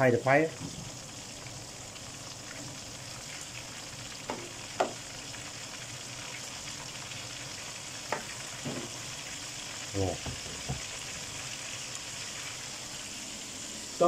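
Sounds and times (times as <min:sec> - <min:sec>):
fish deep-frying in oil: 0:00.0 - 0:14.0.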